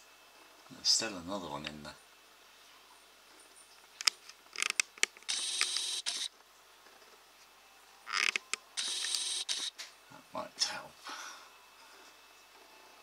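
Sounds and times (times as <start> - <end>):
camera control clicks: 4.0 - 6.3
camera zoom motor whirring: 4.6 - 6.3, 8.1 - 9.8.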